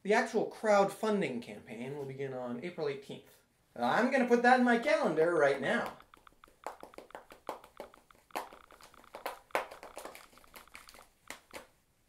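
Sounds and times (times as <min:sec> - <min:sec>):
typing on touchscreen: 0:05.5 - 0:11.8.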